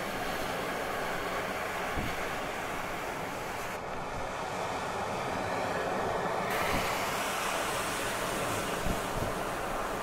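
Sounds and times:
wind buffeting microphone: 0.0 - 3.0, 8.0 - 10.0.

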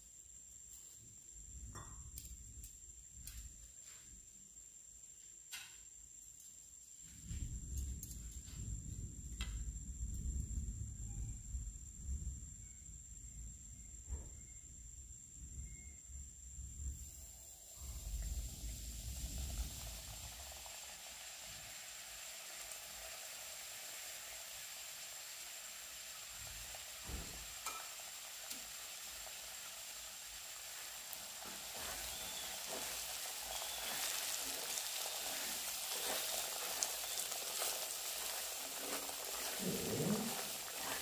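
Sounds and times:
food sizzling in hot fat: 16.8 - 41.0
spatula scraping pan: 31.4 - 41.0.

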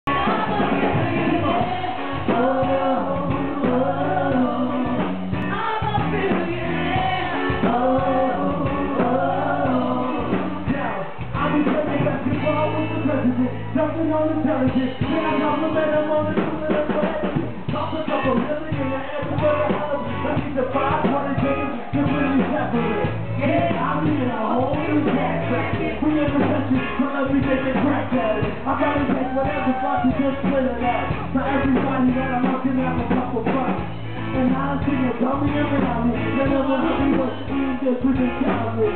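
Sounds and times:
steady drum beat: 0.1 - 13.3, 14.6 - 38.9
lead singer: 0.1 - 38.9
live rock band: 0.1 - 38.9.

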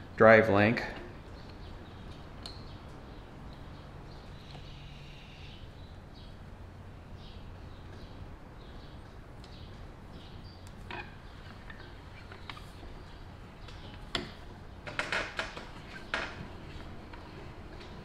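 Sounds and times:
steady low hum: 0.0 - 18.0
metal-on-metal squeaks: 10.9 - 12.8.

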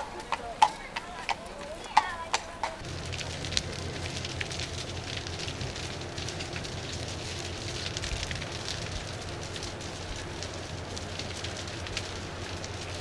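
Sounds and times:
bonfire flames rushing: 2.8 - 13.0
fire crackles and pops: 2.8 - 13.0.

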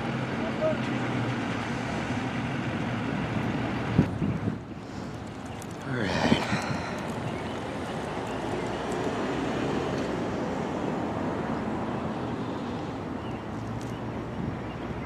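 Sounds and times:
rumble of vehicle traffic: 0.0 - 15.0.

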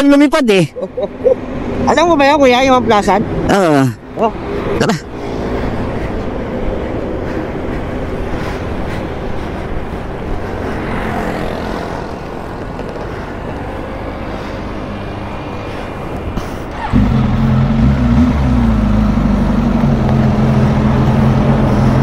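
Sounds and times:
motorcycle engines idling: 16.6 - 22.0.

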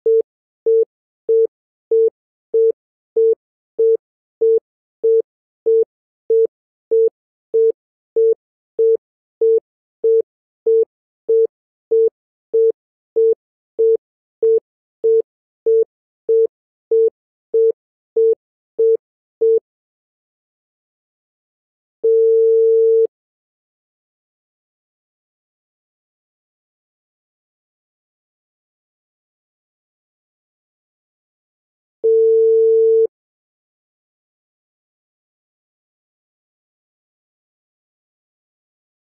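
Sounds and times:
telephone busy tone beeps: 0.1 - 19.6, 22.0 - 23.1, 32.0 - 33.1.

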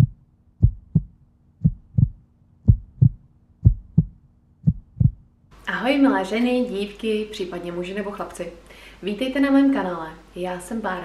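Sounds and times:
heartbeat thumps: 0.0 - 5.3
faint steady hum: 0.0 - 11.0.

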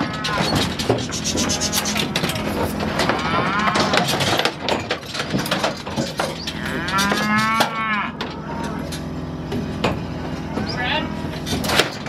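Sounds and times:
cattle mooing: 0.0 - 4.5, 6.4 - 9.2, 10.0 - 11.4
metal chute knocks and clanks: 0.0 - 12.0.

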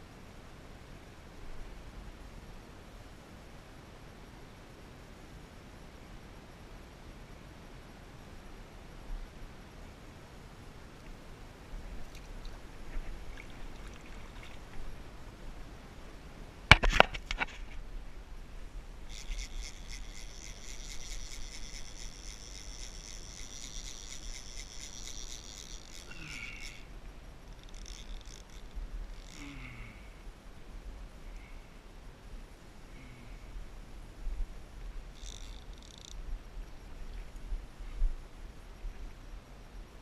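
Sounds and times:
fishing reel drag buzzing: 11.8 - 15.1, 17.3 - 30.2, 35.0 - 37.4.

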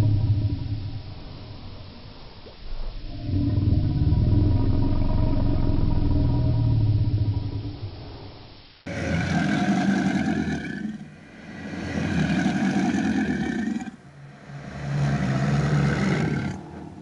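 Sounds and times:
low dragon growls: 2.6 - 8.3, 8.9 - 17.0.

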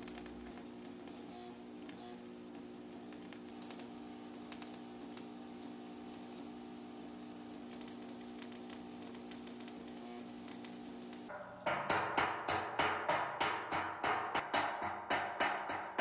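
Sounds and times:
welding arc crackling: 0.0 - 11.3.

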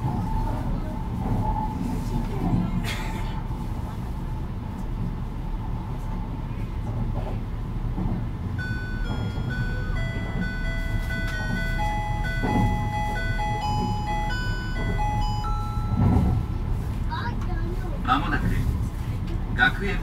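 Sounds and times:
train running rumble: 0.0 - 20.0
electronic chime melody: 8.6 - 16.1.

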